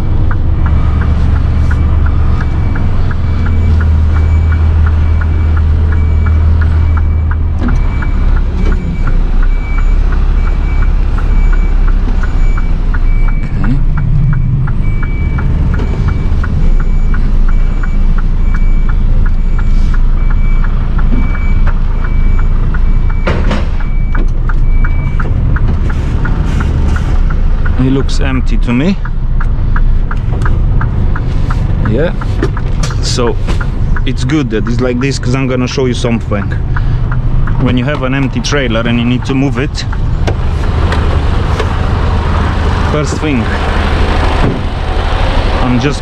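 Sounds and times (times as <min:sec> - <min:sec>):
fast regular ticking: 0:00.0 - 0:23.2, 0:23.9 - 0:43.4
reversing alarm beeps: 0:00.0 - 0:28.4
diesel engine running at low revs: 0:00.0 - 0:46.0.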